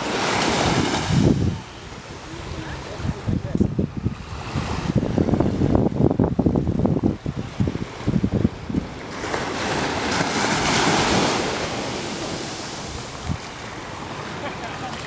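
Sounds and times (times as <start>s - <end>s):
small wave breaking on sand: 0.0s - 1.5s, 9.1s - 15.0s
wind buffeting microphone: 0.0s - 14.2s.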